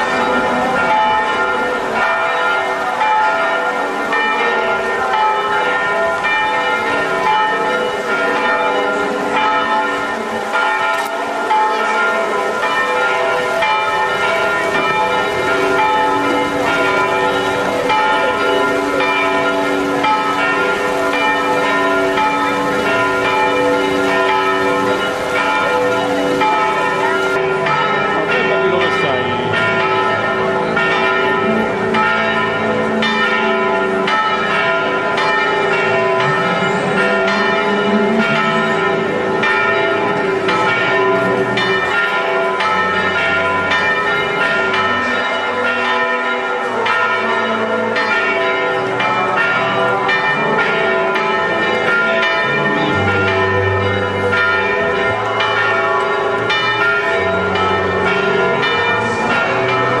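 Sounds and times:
church bells pealing: 0:00.0 - 1:00.0.

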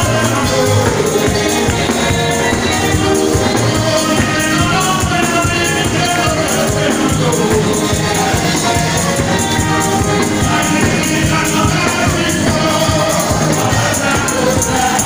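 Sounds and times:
driving percussion: 0:00.0 - 0:15.0
people singing praise music: 0:00.0 - 0:15.0.

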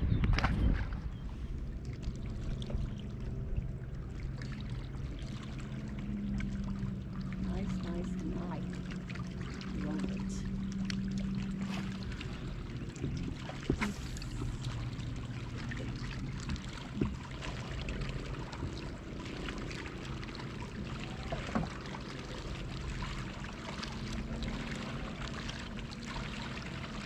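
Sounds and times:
water lapping against a hull: 0:00.0 - 0:27.0
sharp knocks on a boat: 0:13.0 - 0:14.6, 0:16.4 - 0:17.5, 0:21.2 - 0:21.9.

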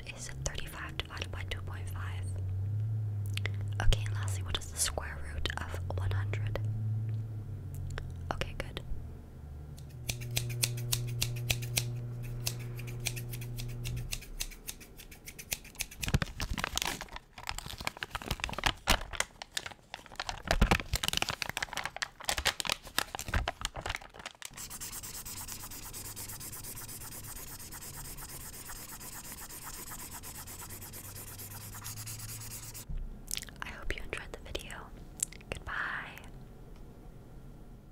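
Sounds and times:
low hum: 0:00.0 - 0:14.6, 0:24.6 - 0:33.3
fingers scratching stickers: 0:10.0 - 0:16.4, 0:24.5 - 0:32.8.

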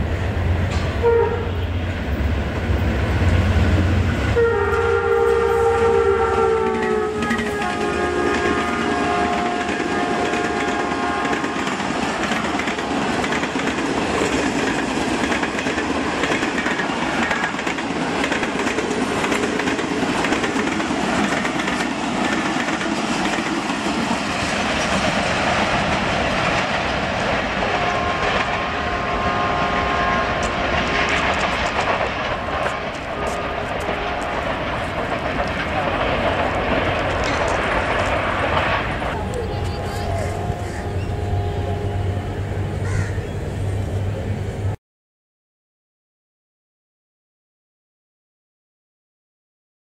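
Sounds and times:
train wheels rushing on rails: 0:00.0 - 0:44.8
train horn: 0:00.7 - 0:01.9, 0:04.1 - 0:11.8, 0:27.6 - 0:31.2, 0:33.2 - 0:34.5, 0:39.1 - 0:43.2.

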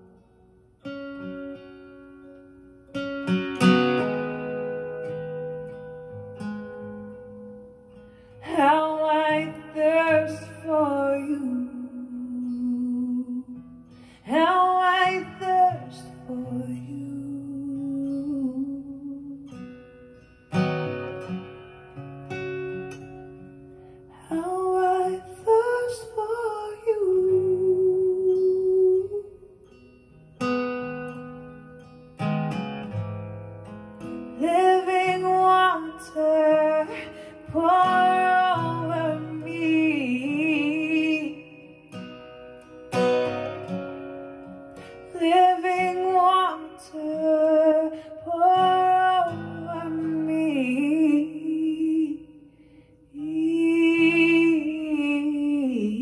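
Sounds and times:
strummed acoustic guitar: 0:00.0 - 0:56.0
woman singing: 0:08.3 - 0:19.9, 0:24.1 - 0:29.8, 0:34.0 - 0:42.2, 0:44.8 - 0:56.0.

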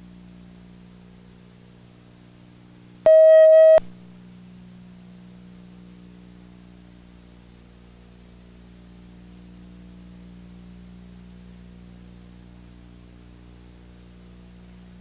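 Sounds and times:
electrical hum: 0:00.0 - 0:15.0
single-pitched beep: 0:03.1 - 0:03.9.

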